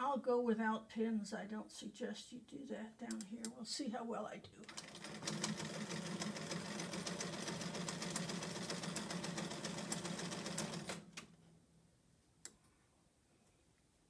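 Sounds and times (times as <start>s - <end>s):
sewing machine stitching: 4.6s - 11.2s.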